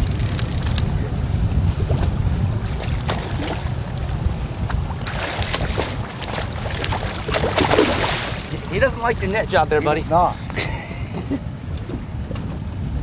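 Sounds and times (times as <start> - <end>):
wind buffeting microphone: 0.0 - 13.0
waves slapping boat hull: 1.6 - 12.6
water splashing from net: 2.6 - 3.8, 5.0 - 8.7.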